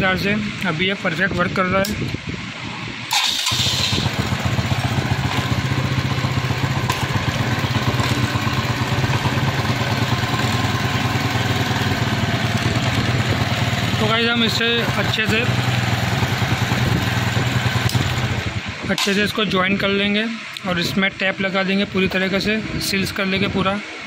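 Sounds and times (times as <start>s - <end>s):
motorcycle engine idling: 3.5s - 18.7s.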